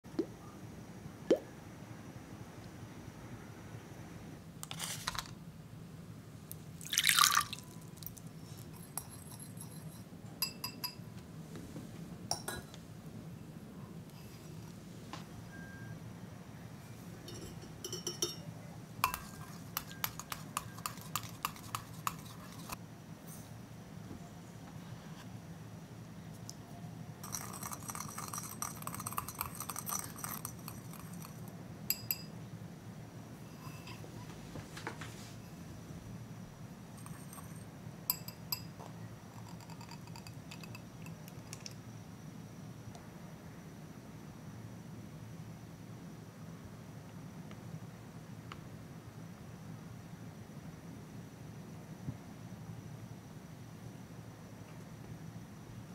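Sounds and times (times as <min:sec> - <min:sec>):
water splashing into glass bowl: 0:06.8 - 0:07.8
whisk clinking against glass bowl: 0:08.8 - 0:11.1, 0:17.3 - 0:18.4, 0:19.0 - 0:22.8, 0:27.2 - 0:32.3, 0:37.0 - 0:38.7, 0:39.4 - 0:41.7
drips clinking on glass: 0:17.3 - 0:18.4.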